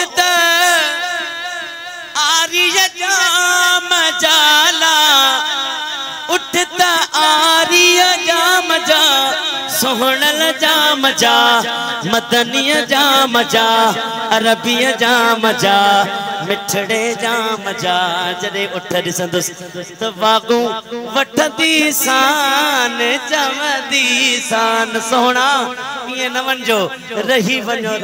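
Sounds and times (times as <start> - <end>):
man singing into microphone: 0.0 - 28.0.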